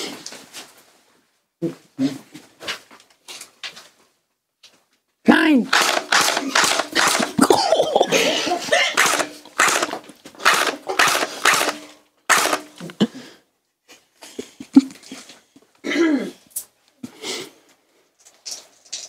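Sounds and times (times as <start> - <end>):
gel bead gun shots: 5.7 - 7.5, 9.0 - 12.8.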